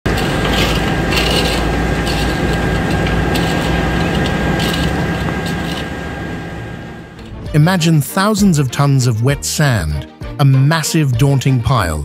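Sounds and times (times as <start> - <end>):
machinery hum: 0.0 - 7.9
shovels scraping wet sand and gravel: 0.1 - 6.2.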